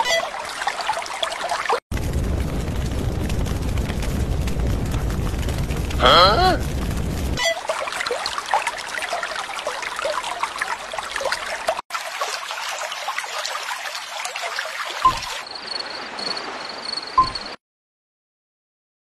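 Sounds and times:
trickling babbling water: 0.0 - 17.6
faint high pulsing chirp: 15.1 - 17.6.

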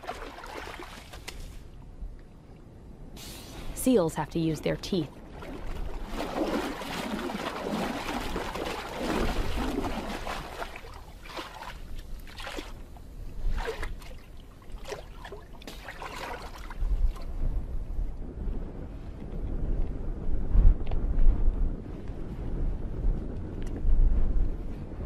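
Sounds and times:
water sloshing and trickling: 0.0 - 1.8, 4.6 - 17.4.

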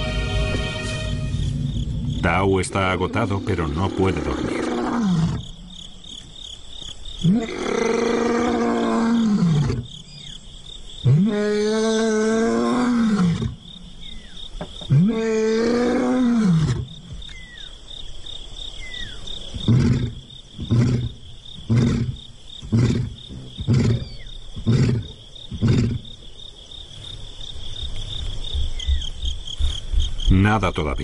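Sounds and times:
insects chirring: 0.0 - 31.0
lion roaring: 1.5 - 5.6, 7.2 - 9.9, 11.0 - 13.6, 14.9 - 16.9, 19.5 - 26.1.

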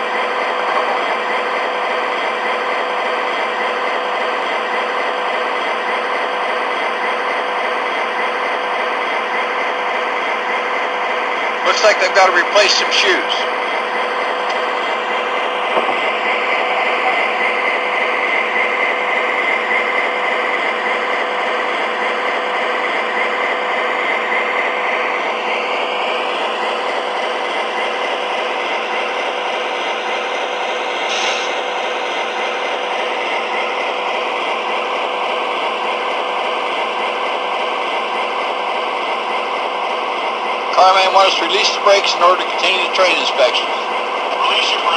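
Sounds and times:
constant hum: 0.0 - 31.0, 31.8 - 44.9
work noise: 0.0 - 44.9.

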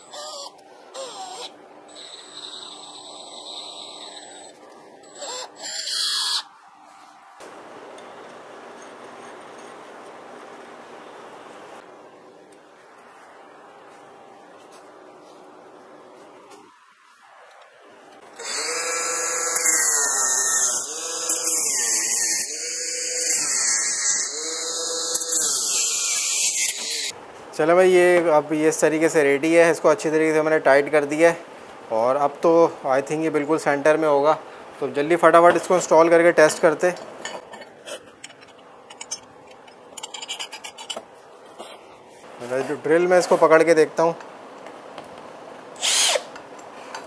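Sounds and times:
angle grinder cutting steel rod: 0.0 - 6.5, 18.4 - 27.1
cordless drill motor whining: 0.0 - 6.5, 18.4 - 27.1, 45.8 - 46.3.

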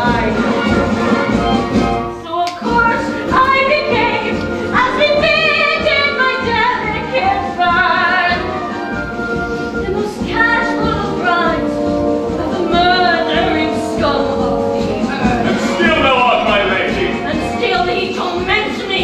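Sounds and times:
woman singing: 0.0 - 0.7, 2.2 - 8.7, 9.8 - 15.6, 17.2 - 19.0
orchestral accompaniment: 0.0 - 19.0.

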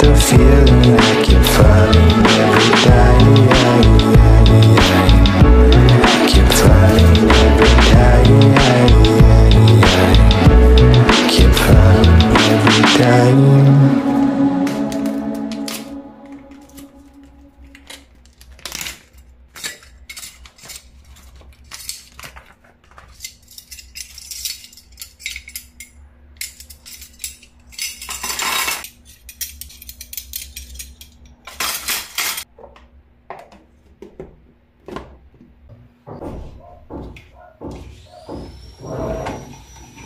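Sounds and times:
cutlery rattling in a box: 23.2 - 32.5
cutlery clinking: 26.4 - 32.5.

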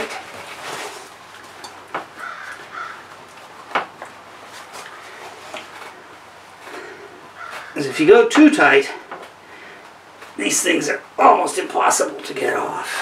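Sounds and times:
paper towel handling: 0.0 - 1.6
faint harsh bird calls: 2.1 - 3.2, 4.7 - 8.2.

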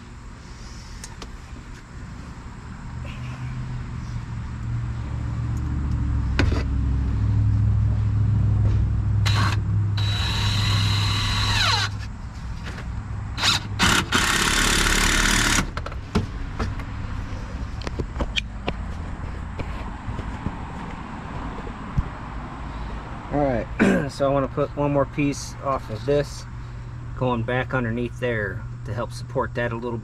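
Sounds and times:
low drone: 2.2 - 11.8
electric saw cutting wood: 9.2 - 12.0, 13.4 - 15.7.

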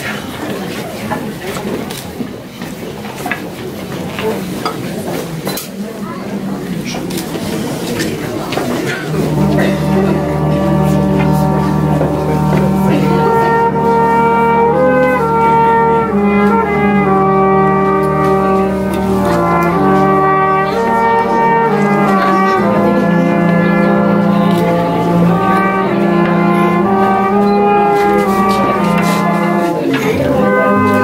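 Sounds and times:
brass playing slow held chords: 8.8 - 31.0.

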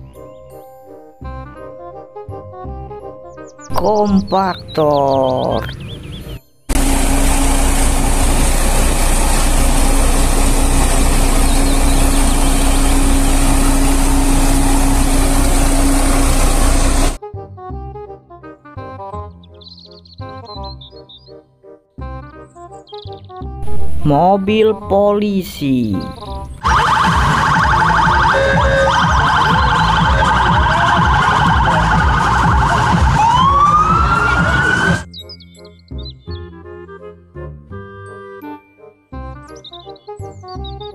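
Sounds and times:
low street rumble: 5.8 - 17.2, 25.4 - 35.0
diesel engine running: 6.0 - 17.2, 23.6 - 24.6, 25.3 - 35.0
police car siren: 26.6 - 35.1.

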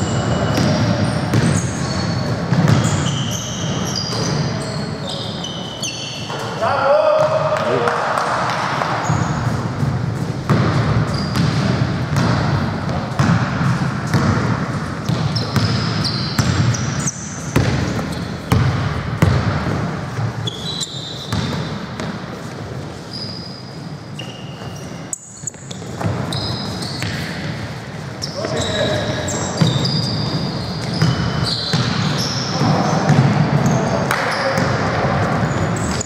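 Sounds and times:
sneaker squeaks: 0.0 - 7.8, 8.5 - 36.0
basketball bouncing on hardwood: 0.5 - 1.6, 2.5 - 3.0, 10.4 - 16.8, 17.5 - 19.8, 33.1 - 33.4.

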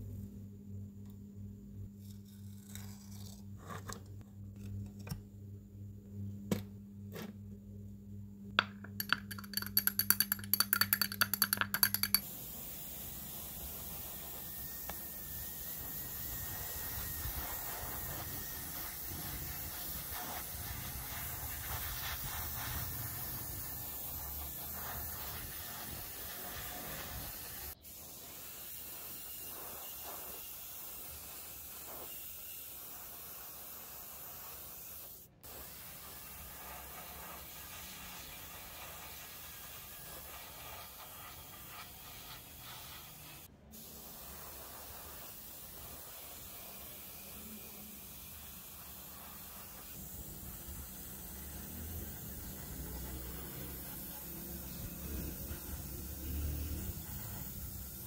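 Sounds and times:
paint spraying hiss: 8.6 - 58.0
rapid rattling clicks: 9.0 - 12.2.

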